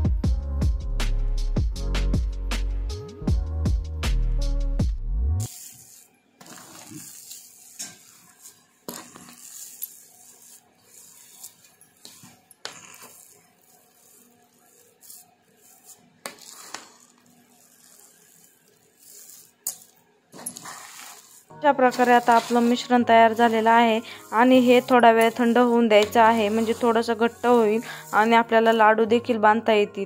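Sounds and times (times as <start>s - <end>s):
metal spatula scraping a pan: 5.5s - 29.3s.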